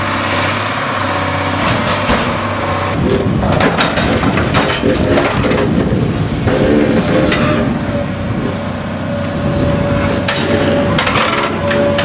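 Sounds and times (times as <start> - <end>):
heavy machinery engine running: 0.0 - 12.0
sharp knocks and cracks: 3.5 - 5.7.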